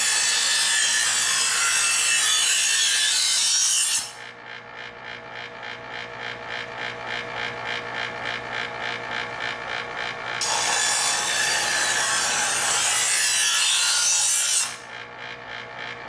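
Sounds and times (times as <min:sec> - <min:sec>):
knife grinding in electric sharpener: 0:00.0 - 0:04.3, 0:10.0 - 0:15.0.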